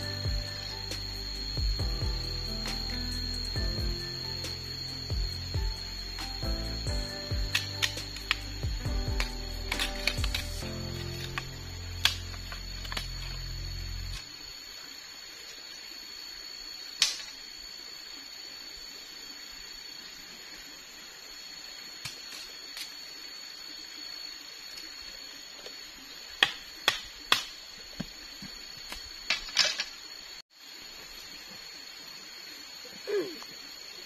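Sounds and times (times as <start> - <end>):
high-pitched background whine: 0.0 - 34.0
machete striking bamboo: 26.4 - 27.6.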